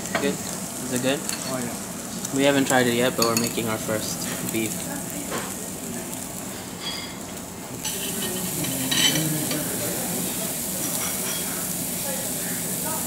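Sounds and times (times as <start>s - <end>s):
meat sizzling on a grill: 0.0s - 13.0s.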